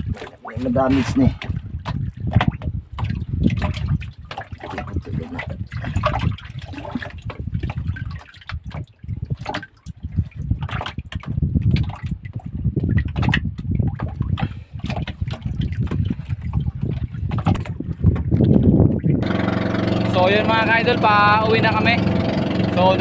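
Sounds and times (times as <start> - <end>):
water sloshing and splashing: 0.0 - 23.0
knocks in boat: 17.3 - 18.6.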